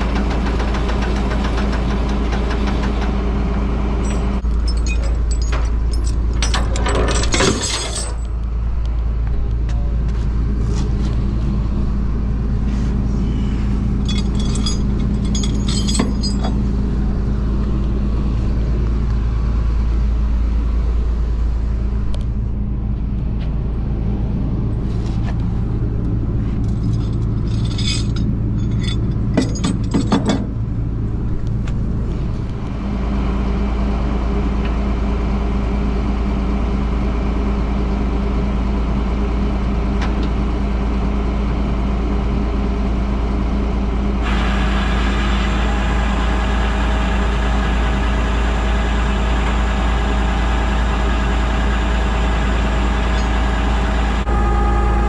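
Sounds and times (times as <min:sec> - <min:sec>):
truck engine running: 0:00.0 - 0:55.0
metal chains clinking and rattling: 0:04.0 - 0:08.3, 0:13.9 - 0:16.7, 0:26.6 - 0:30.5.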